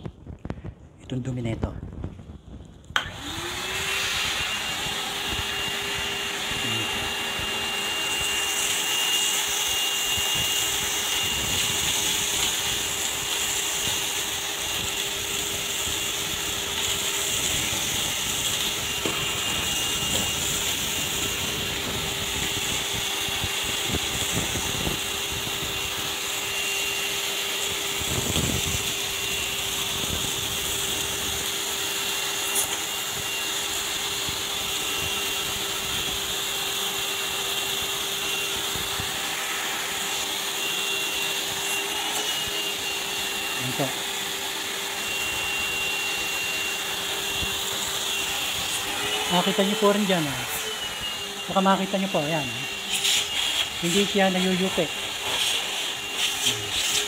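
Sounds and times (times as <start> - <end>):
shop vacuum running: 2.8 - 57.0.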